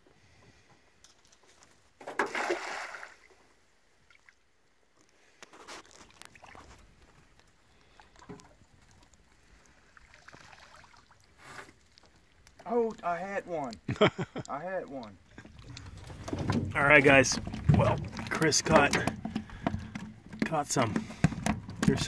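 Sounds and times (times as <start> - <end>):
faint water sounds: 0.0 - 22.0
net splashing into water: 2.1 - 3.3, 9.9 - 12.0.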